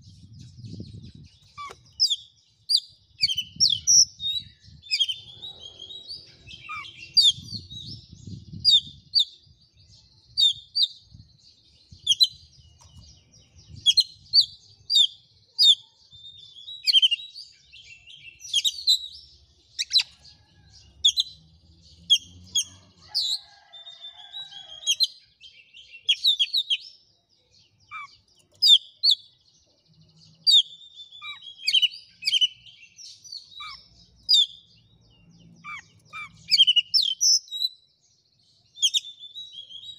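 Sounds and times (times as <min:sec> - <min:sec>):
bird singing chirps and whistles: 0:00.0 - 0:11.1, 0:12.0 - 0:20.2, 0:24.8 - 0:27.0, 0:27.8 - 0:29.3, 0:30.4 - 0:34.7, 0:35.6 - 0:37.9, 0:38.8 - 0:39.9.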